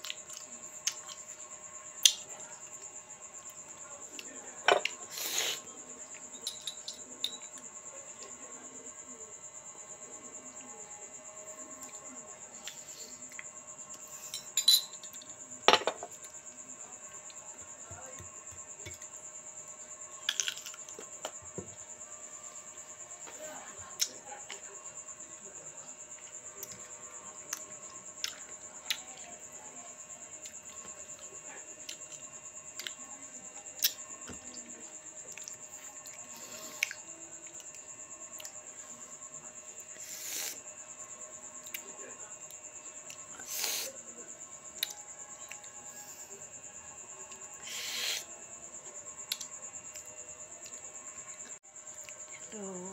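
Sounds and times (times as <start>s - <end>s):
crickets chirring: 0.0s - 52.9s
china cup and spoon clinking: 6.4s - 7.5s, 14.3s - 15.1s.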